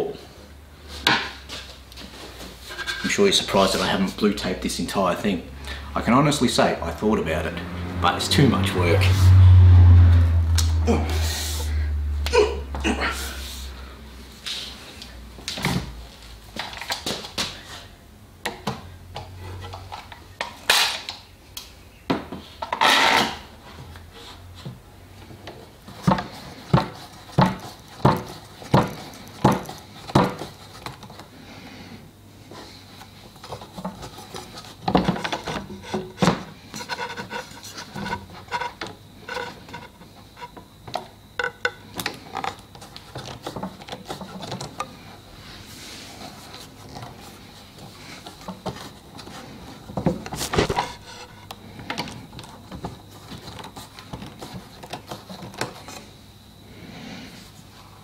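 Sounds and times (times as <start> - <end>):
clamp bars rubbing and clattering: 2.6 - 3.3, 50.4 - 51.5.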